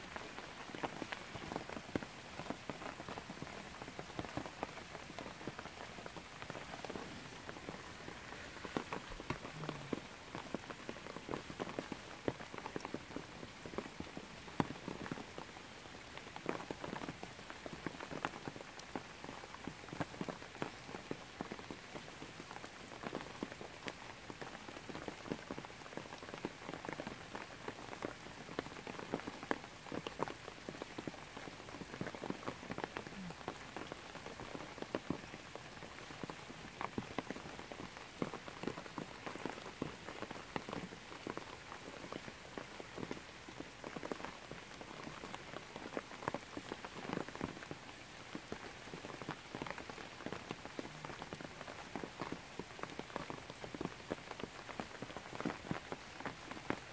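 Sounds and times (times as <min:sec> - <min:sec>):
rain pattering on leaves: 0:00.0 - 0:56.9.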